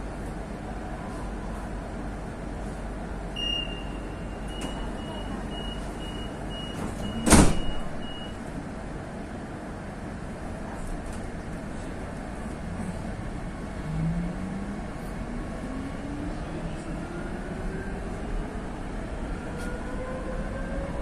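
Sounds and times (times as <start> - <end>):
short high warning beeps: 3.3 - 8.4
sliding doors slamming shut: 6.7 - 8.0
stopped train humming: 7.8 - 21.0.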